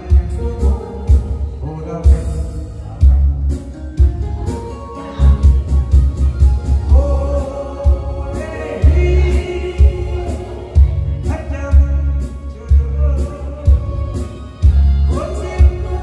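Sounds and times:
man singing into a microphone: 0:00.0 - 0:02.6, 0:06.8 - 0:14.3, 0:15.0 - 0:16.0
backing track with heavy bass beat: 0:00.0 - 0:16.0.

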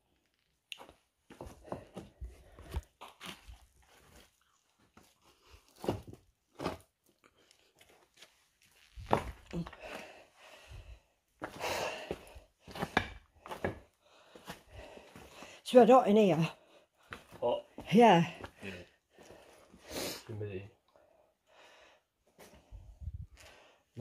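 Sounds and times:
footsteps on stone rubble: 0:00.9 - 0:05.1, 0:05.7 - 0:07.0, 0:07.8 - 0:10.2, 0:11.4 - 0:15.5, 0:17.0 - 0:19.6.

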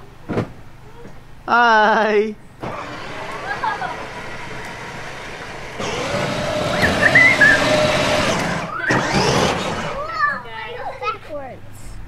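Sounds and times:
plastic wheels rattling on paving: 0:02.6 - 0:10.0
small electric motor whine: 0:02.6 - 0:10.0.

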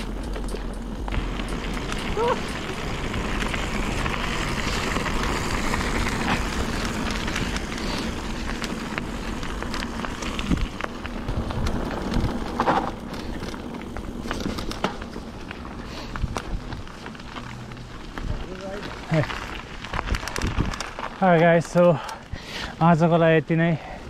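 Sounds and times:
bike clicks and rattles: 0:00.0 - 0:24.0
tyres crunching over gravel: 0:00.0 - 0:24.0
wind rushing over microphone: 0:00.9 - 0:14.4, 0:19.9 - 0:21.0.

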